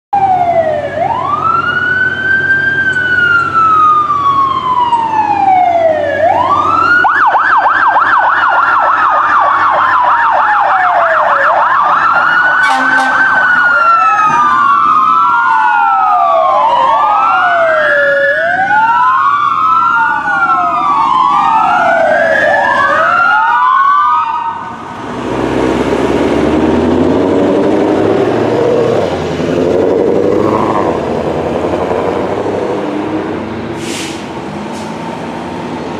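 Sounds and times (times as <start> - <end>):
electronic siren wailing: 0.2 - 24.9
second siren wailing: 0.2 - 24.9
truck engine running: 24.7 - 35.9
short hiss: 33.8 - 35.0.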